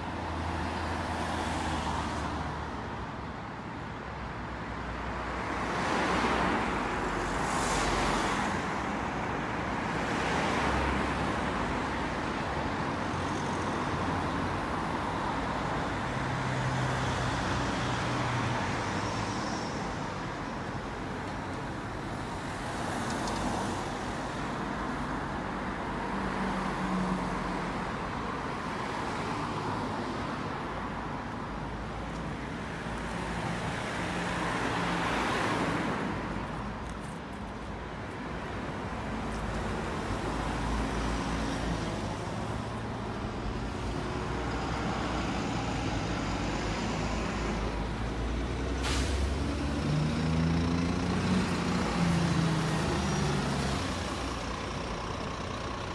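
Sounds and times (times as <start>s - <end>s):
cars passing: 4.4s - 55.9s
brief hiss: 48.7s - 49.3s.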